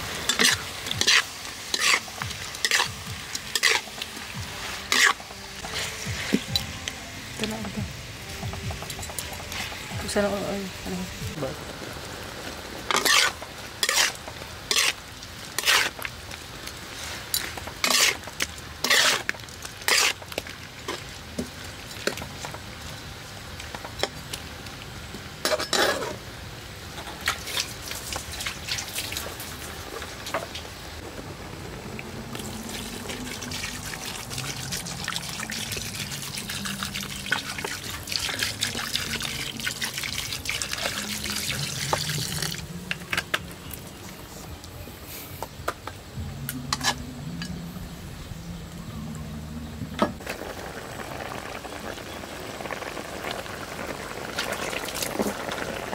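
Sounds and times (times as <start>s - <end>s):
metal spatula scraping a wok: 0.2s - 4.0s, 4.6s - 6.6s, 12.9s - 16.0s, 17.0s - 20.3s, 25.4s - 26.2s, 46.7s - 47.6s.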